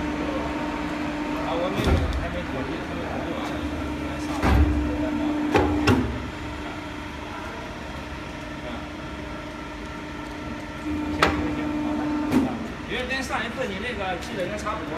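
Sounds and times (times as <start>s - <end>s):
hydraulic pump hum: 0.0s - 13.6s.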